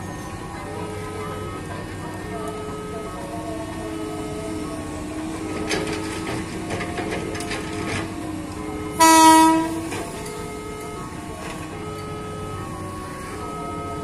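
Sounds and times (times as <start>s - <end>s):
electric train horn blast: 8.9s - 10.0s.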